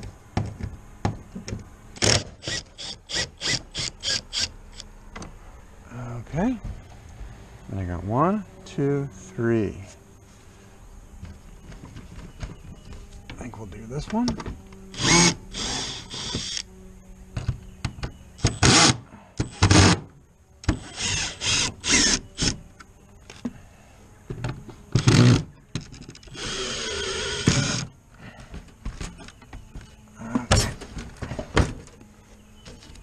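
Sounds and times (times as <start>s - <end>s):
cordless drill bursts: 2.0s - 4.8s, 14.9s - 16.6s, 20.7s - 22.6s, 26.3s - 27.9s.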